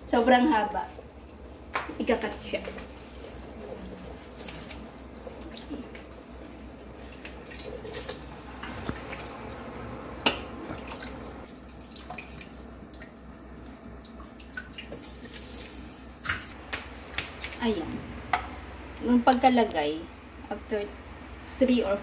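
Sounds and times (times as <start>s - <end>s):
water dripping and trickling: 7.1s - 15.6s.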